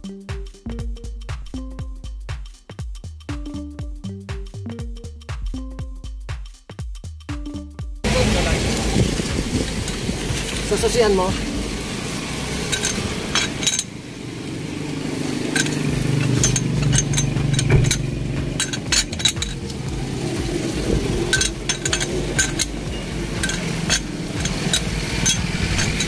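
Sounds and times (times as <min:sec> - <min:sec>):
lug wrench clinking on nuts: 0:12.7 - 0:14.0, 0:15.4 - 0:20.0, 0:21.1 - 0:26.0.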